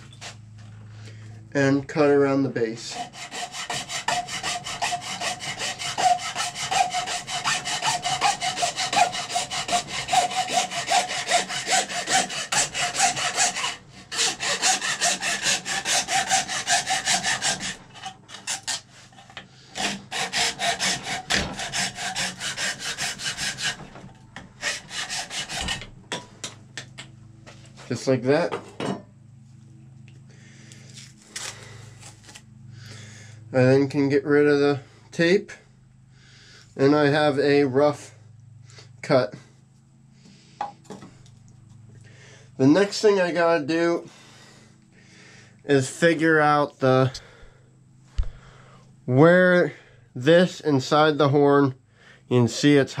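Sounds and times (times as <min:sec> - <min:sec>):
hacksaw rasping through horn: 0:02.7 - 0:24.0, 0:24.6 - 0:25.9.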